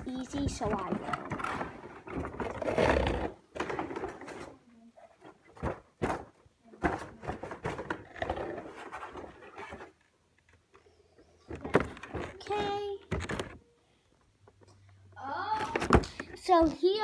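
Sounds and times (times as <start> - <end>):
packaging rustling and scraping: 0.4 - 6.2, 6.8 - 10.2.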